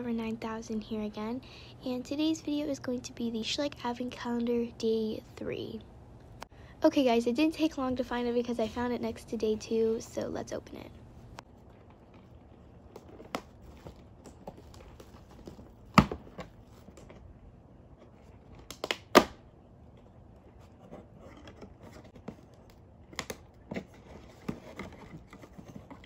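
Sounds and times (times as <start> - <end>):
cardboard rustling and crinkling: 11.4 - 17.3, 19.9 - 26.0
cardboard tearing and snapping: 18.4 - 19.4.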